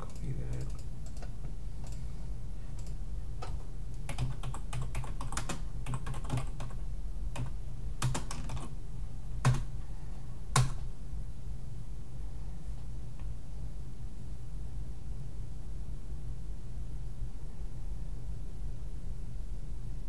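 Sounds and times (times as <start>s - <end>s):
keyboard typing: 0.0s - 2.0s, 2.7s - 8.7s, 9.4s - 9.7s, 10.5s - 10.9s
steady low hum: 0.0s - 20.0s.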